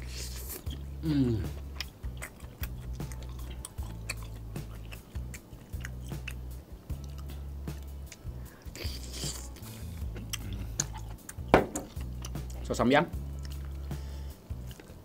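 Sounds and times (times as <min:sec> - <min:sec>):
person chewing wetly: 0:00.3 - 0:12.6, 0:13.3 - 0:13.9, 0:14.5 - 0:15.0
mouth sucking sound: 0:08.6 - 0:10.6.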